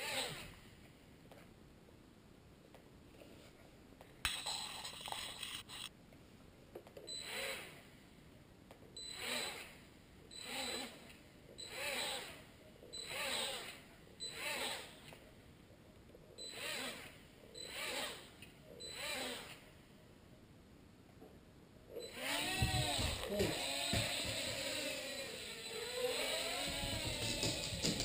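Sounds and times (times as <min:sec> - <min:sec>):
quadcopter motors whining: 0:07.2 - 0:07.7, 0:09.1 - 0:09.7, 0:10.4 - 0:11.0, 0:11.6 - 0:12.4, 0:13.0 - 0:14.9, 0:18.8 - 0:19.6, 0:22.0 - 0:28.0.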